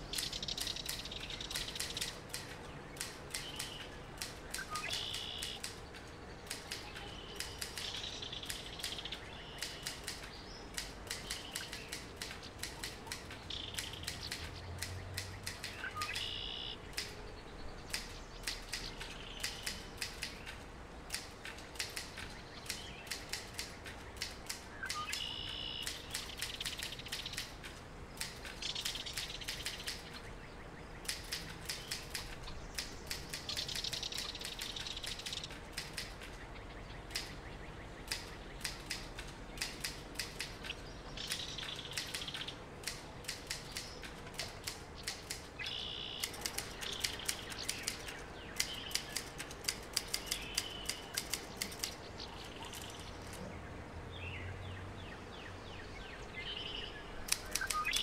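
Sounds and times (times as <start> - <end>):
typewriter keys clacking: 46.2 - 48.2.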